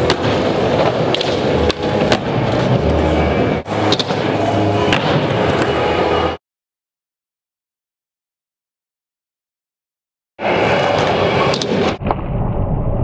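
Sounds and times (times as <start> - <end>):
loud background music: 0.0 - 6.4.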